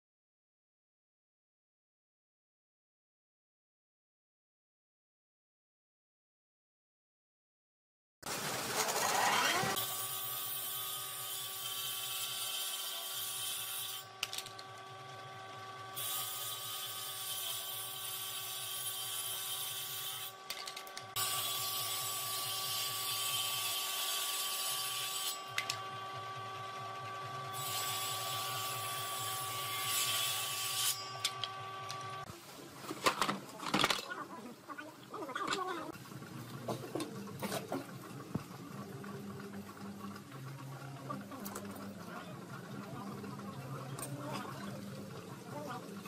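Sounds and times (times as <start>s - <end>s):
saw cutting wood: 8.2s - 32.3s
table saw whine: 8.3s - 32.3s.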